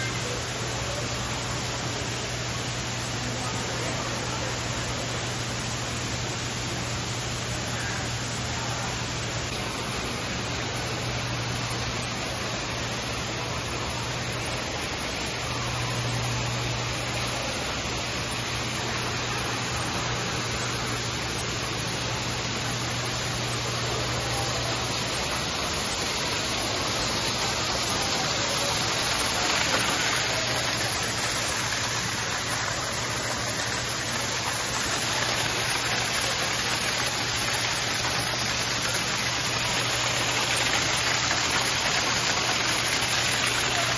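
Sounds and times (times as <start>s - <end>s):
waterfall splashing on rock: 9.3s - 43.9s.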